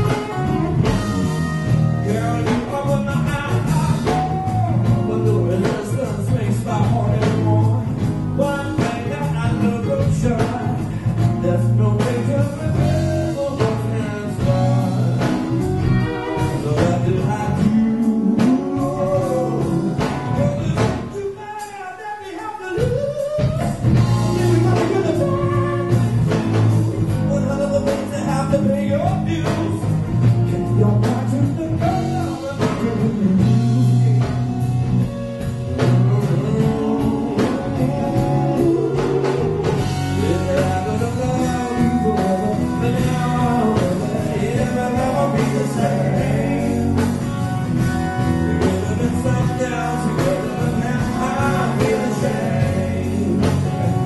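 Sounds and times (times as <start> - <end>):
electric bass: 0.0 - 21.4, 22.8 - 54.0
acoustic guitar: 0.0 - 54.0
man singing: 0.0 - 54.0.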